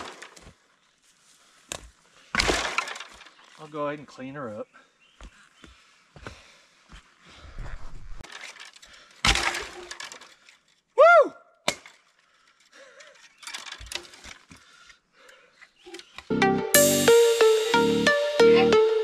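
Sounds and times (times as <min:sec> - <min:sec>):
dead wood cracking and snapping: 0:01.7 - 0:03.6.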